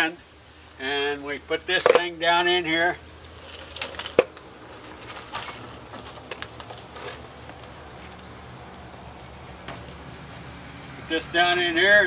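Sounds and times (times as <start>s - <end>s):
hose scraping and tapping wood: 1.8s - 2.1s, 3.1s - 8.3s, 8.9s - 10.6s, 11.4s - 11.7s.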